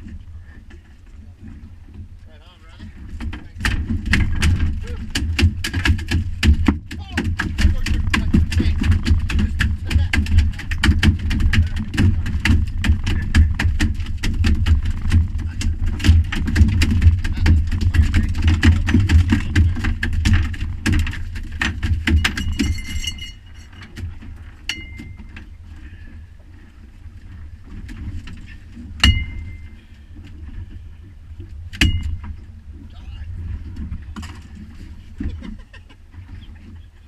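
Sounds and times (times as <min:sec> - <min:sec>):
heavy low rumble: 0:00.0 - 0:35.5
fish thrashing on deck: 0:02.8 - 0:26.3.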